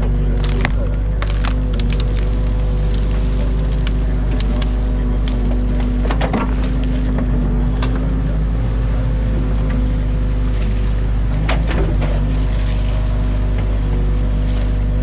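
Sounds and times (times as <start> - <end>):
sticks and mud cracking: 0.0 - 8.1
excavator diesel engine running: 0.0 - 15.0.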